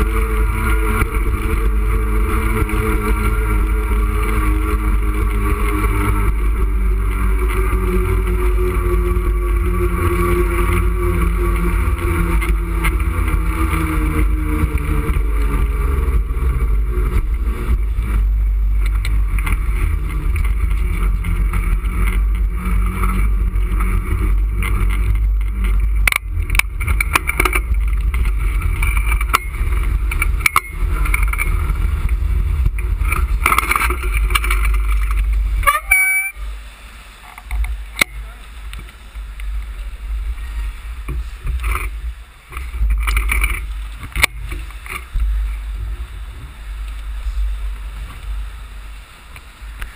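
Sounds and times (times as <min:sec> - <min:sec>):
wind buffeting microphone: 0:00.0 - 0:35.7
road traffic: 0:00.0 - 0:49.9.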